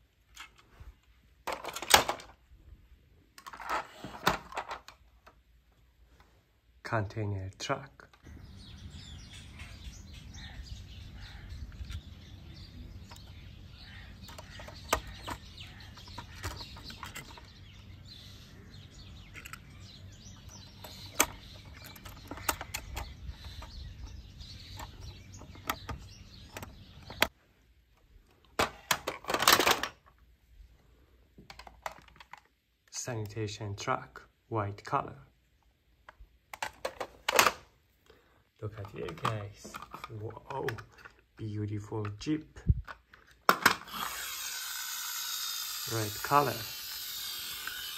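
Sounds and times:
toy trucks clattering: 1.4s - 2.4s, 3.4s - 5.1s, 14.2s - 17.6s, 19.2s - 19.8s, 28.6s - 30.2s, 38.7s - 41.4s, 42.8s - 47.9s
birds chirping: 6.9s - 28.5s, 32.5s - 43.2s
toy vehicles clicking on wood: 13.0s - 17.9s, 19.1s - 27.3s, 28.5s - 30.2s, 31.4s - 33.0s, 42.0s - 47.9s.

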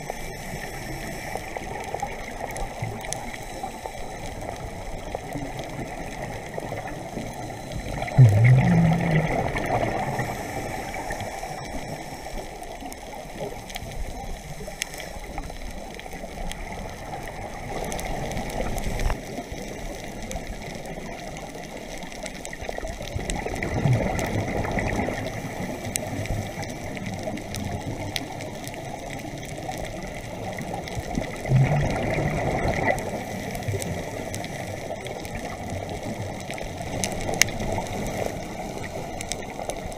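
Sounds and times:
rushing hiss of water: 0.0s - 22.8s
underwater bubbles gurgling: 0.0s - 39.9s.

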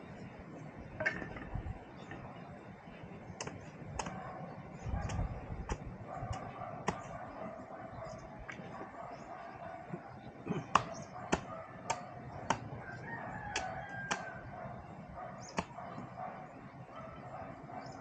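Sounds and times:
rooster crowing: 12.8s - 14.5s.

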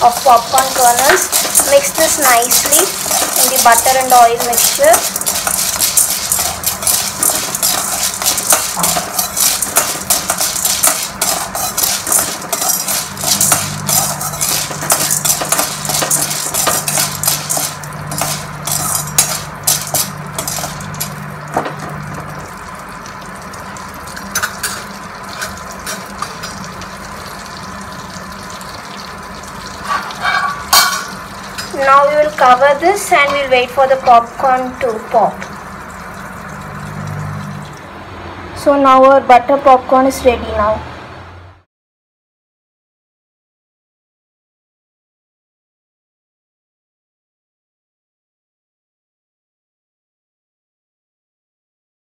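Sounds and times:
spoon scraping metal pot: 0.0s - 21.3s, 24.2s - 26.5s, 29.8s - 31.8s
kernels clicking against metal: 0.0s - 21.6s
kernels sizzling in fat: 0.0s - 37.9s.

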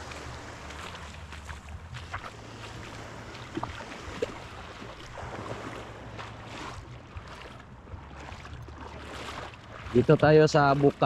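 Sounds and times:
moving water: 0.0s - 11.0s.

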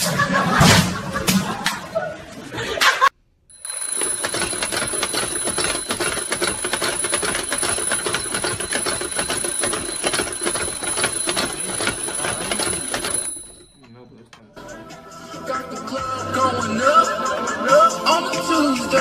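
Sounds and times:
alarm bell ringing: 3.5s - 14.2s.

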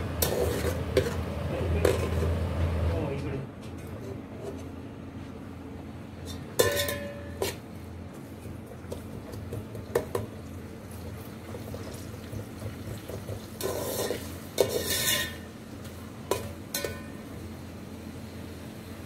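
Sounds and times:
onions frying: 0.0s - 2.6s, 8.2s - 19.0s
spoon scraping pot bottom: 0.2s - 1.2s, 13.6s - 15.4s
spoon clinking against pot: 6.6s - 7.6s.

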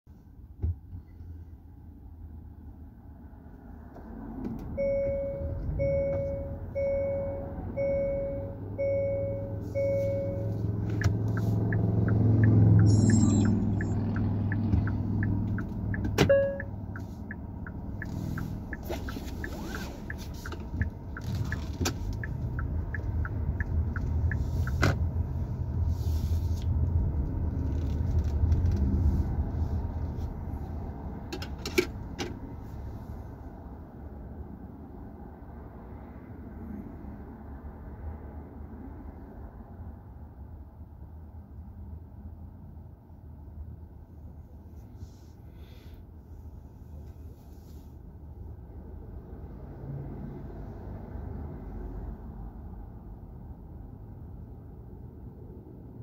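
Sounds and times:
car engine and road rumble: 0.1s - 56.0s
turn signal ticking: 4.6s - 25.9s
warning chime beeps: 4.8s - 10.6s, 11.4s - 15.4s, 16.2s - 16.8s.

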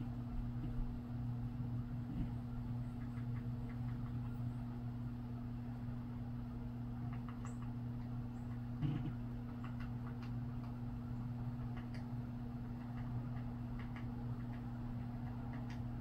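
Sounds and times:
steady low hum: 0.0s - 16.0s
woodpecker tapping: 12.7s - 15.9s.

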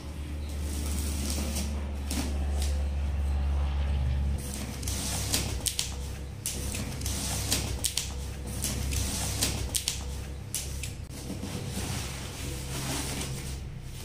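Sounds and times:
low steady hum: 0.0s - 14.0s
cardboard scraping: 0.5s - 2.8s, 6.6s - 10.4s, 11.1s - 14.0s
packing tape peeling: 4.5s - 11.0s.

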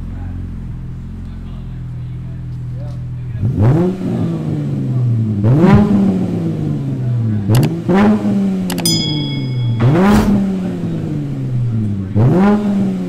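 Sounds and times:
car engine revving in blips: 3.4s - 8.9s, 9.7s - 13.0s.

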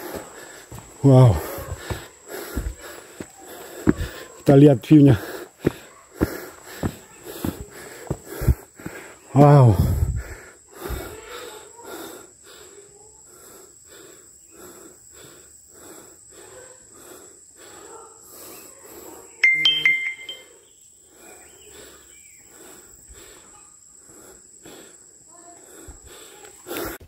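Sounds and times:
heavy rhythmic panting: 0.0s - 9.2s, 9.9s - 19.3s
sharp high-pitched call: 19.4s - 20.5s
faint steady high tone: 19.4s - 20.7s.

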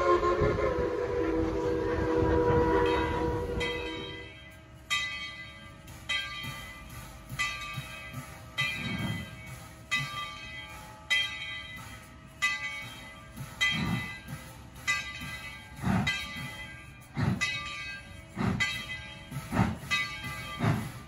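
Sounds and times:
steam locomotive whistle: 0.0s - 4.3s
locomotive bell ringing: 2.4s - 21.0s.

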